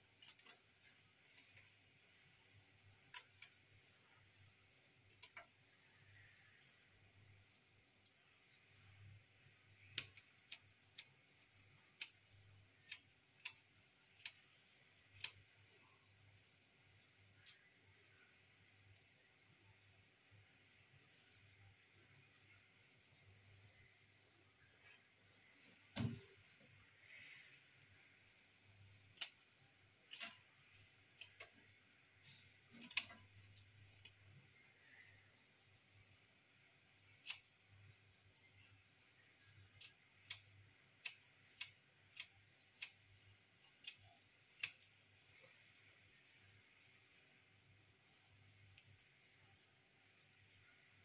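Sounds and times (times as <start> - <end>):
scissors snipping prawn shells: 9.8 - 15.9, 30.1 - 30.4, 32.7 - 34.2, 39.4 - 43.0, 43.6 - 45.7.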